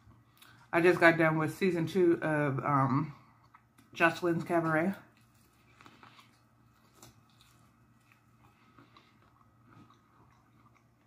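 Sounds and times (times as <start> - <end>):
person chewing food: 0.0 - 0.7, 3.2 - 4.0, 5.0 - 11.0.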